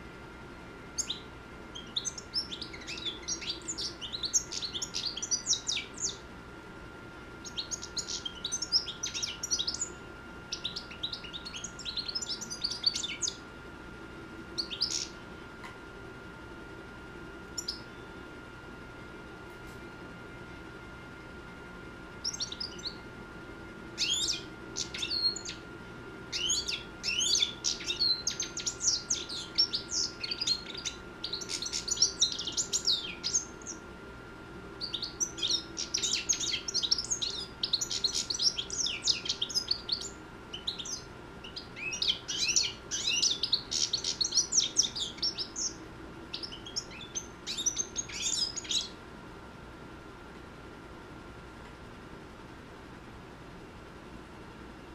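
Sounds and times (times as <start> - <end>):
faint steady whine: 0.0 - 54.9
goldfinch twittering: 0.9 - 6.2, 7.4 - 13.4, 14.6 - 15.2, 17.5 - 18.0, 22.2 - 23.0, 24.0 - 25.6, 26.3 - 33.8, 34.8 - 48.9.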